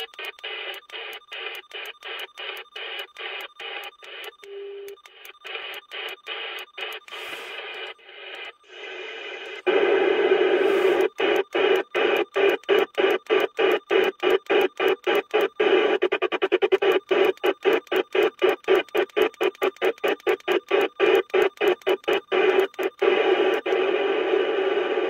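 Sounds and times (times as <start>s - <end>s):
radio static hiss: 5.5s - 25.0s.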